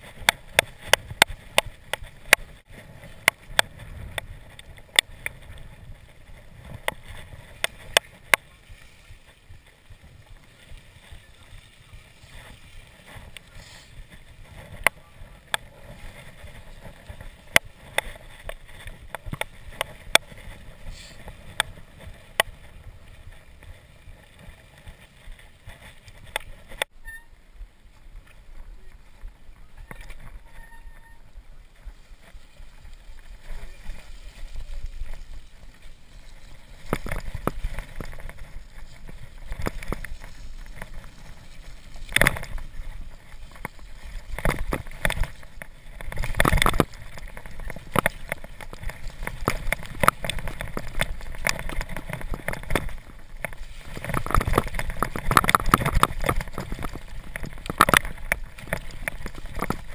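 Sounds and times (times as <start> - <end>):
bike rattling over bumps: 0.0 - 59.9
tyres squelching through slush: 8.4 - 16.9.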